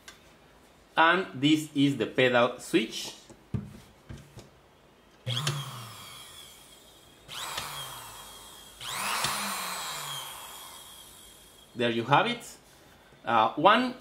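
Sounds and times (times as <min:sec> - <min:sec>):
sewing machine motor whirring: 0:05.3 - 0:11.7.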